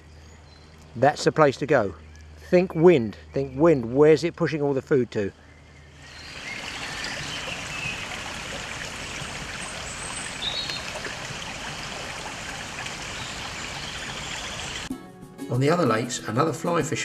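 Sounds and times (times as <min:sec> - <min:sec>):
running water rushing: 0:06.0 - 0:14.9.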